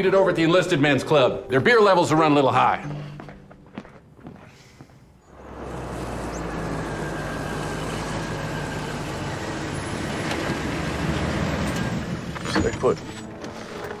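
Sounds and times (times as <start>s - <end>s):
car engine passing: 5.2s - 12.5s.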